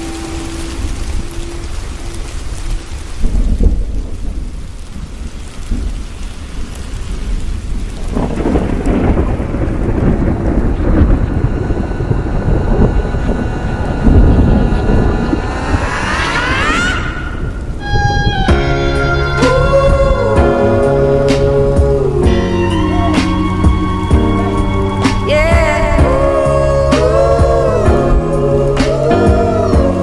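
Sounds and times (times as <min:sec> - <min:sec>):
rising tones: 0:00.0 - 0:03.2, 0:10.2 - 0:28.6
rolling thunder: 0:00.0 - 0:30.0
steady rain: 0:00.0 - 0:30.0.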